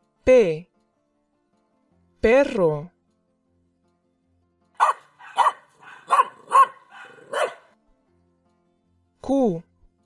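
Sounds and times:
dog barking: 4.8s - 7.8s.

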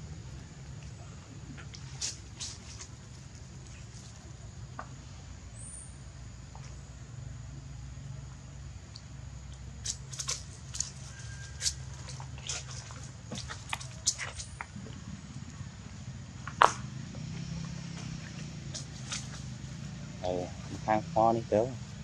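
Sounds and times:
steady low hum: 0.0s - 22.0s
monkeys squeaking and clicking: 9.9s - 14.7s, 18.7s - 19.6s.

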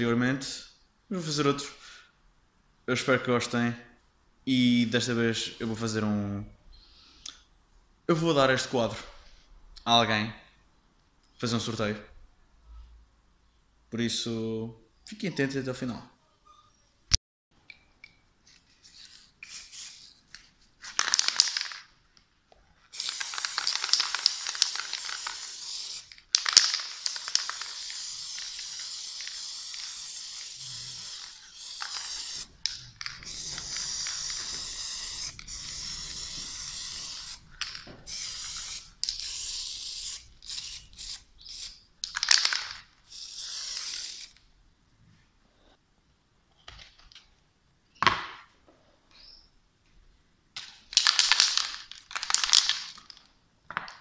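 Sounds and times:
spray paint can hissing: 19.4s - 20.1s, 22.9s - 44.4s.

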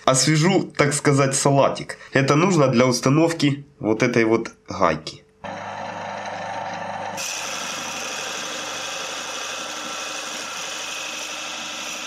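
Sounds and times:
lathe motor hum: 5.4s - 12.0s
cutting hiss: 7.2s - 12.0s.

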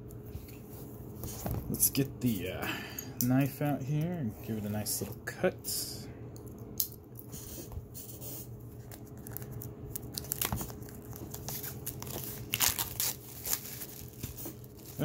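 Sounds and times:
knife cutting plastic wrap: 9.1s - 15.0s.

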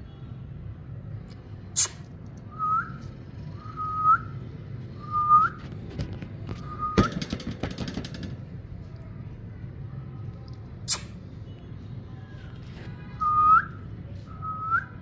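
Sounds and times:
bird whistling: 5.0s - 5.6s, 6.6s - 7.1s
rattling: 6.8s - 8.7s.

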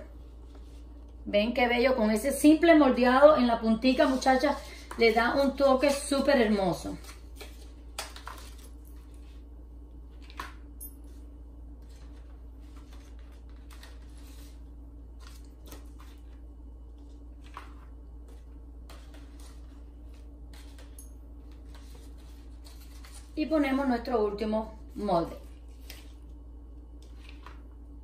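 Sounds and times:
steady low hum: 0.0s - 28.0s
paper rustling and tapping: 4.0s - 9.3s, 11.8s - 14.6s, 17.0s - 23.4s.

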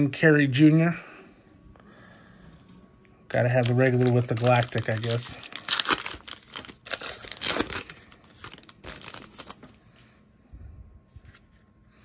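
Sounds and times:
card wrapper crinkling and tearing: 3.3s - 10.1s.

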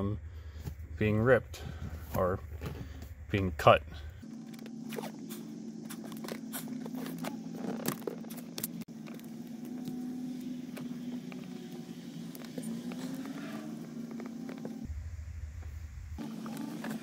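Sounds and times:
steady low hum: 0.0s - 17.0s
tape crackles and clicks: 4.3s - 14.9s.

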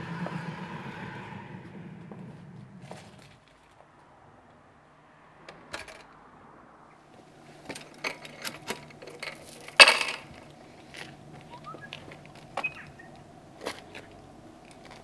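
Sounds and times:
metal clatter: 7.6s - 11.0s.

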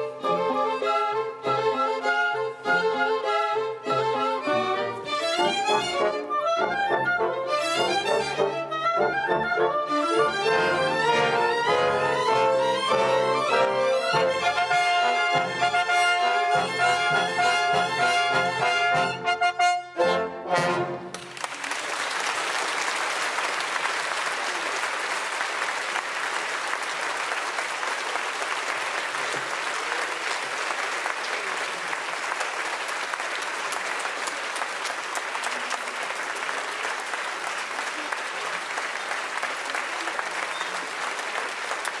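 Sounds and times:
audience applauding: 21.0s - 42.0s.

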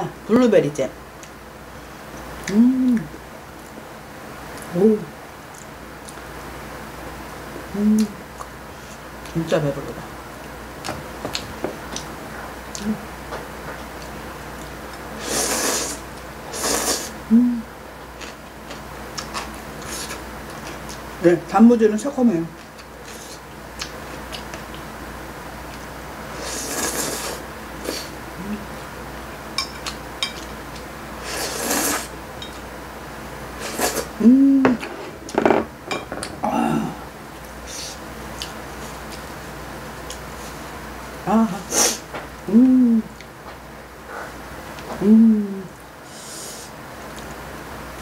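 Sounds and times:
woman humming with mouth full: 2.5s - 3.2s, 4.7s - 5.1s, 7.7s - 8.2s, 17.3s - 17.7s, 28.4s - 28.7s, 34.2s - 34.8s, 42.5s - 43.2s, 45.0s - 45.8s
person slurping noodles: 15.2s - 17.2s, 26.3s - 28.1s, 31.2s - 32.1s, 33.6s - 34.8s
chopsticks clinking on plate: 29.6s - 30.6s.

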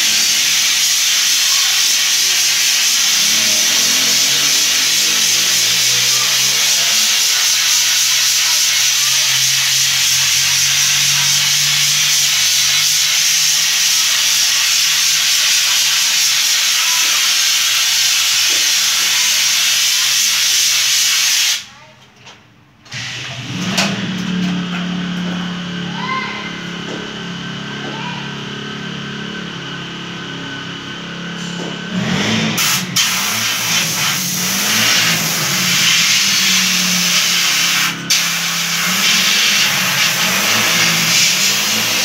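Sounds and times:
spray gun hissing: 0.0s - 21.6s, 32.6s - 42.0s.

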